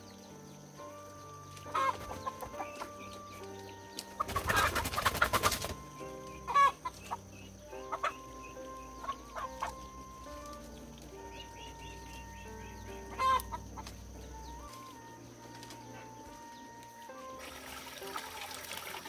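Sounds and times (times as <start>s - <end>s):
soft background music: 0.0s - 19.0s
chickens clucking: 1.4s - 17.3s
chicken commotion: 1.5s - 16.8s.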